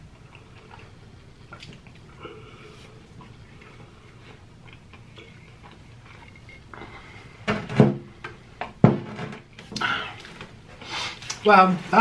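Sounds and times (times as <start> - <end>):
chewing clicks and smacks: 0.0 - 2.1, 3.2 - 6.7
low steady hum: 0.0 - 12.0.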